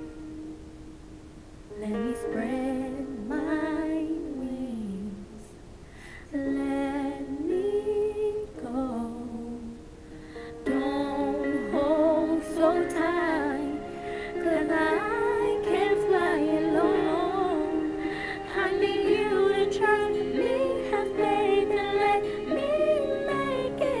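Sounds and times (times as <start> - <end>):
backing track of sustained chords: 8.6 - 24.0
woman singing with vibrato: 10.7 - 24.0.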